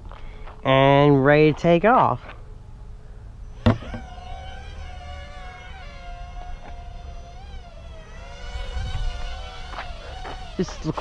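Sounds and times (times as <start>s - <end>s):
drone propellers buzzing whine: 2.4s - 11.0s.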